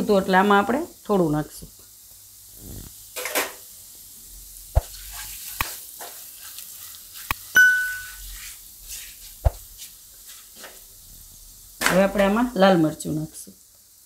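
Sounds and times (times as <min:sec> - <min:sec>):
spices sizzling in oil: 0:00.0 - 0:14.0
electronic ding: 0:07.6 - 0:08.2.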